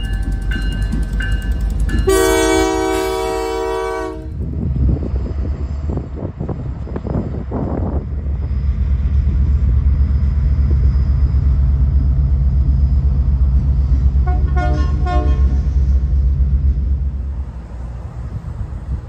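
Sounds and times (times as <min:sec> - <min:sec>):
freight train rumbling past: 0:00.0 - 0:19.0
train horn toots: 0:02.0 - 0:04.4, 0:14.2 - 0:15.7.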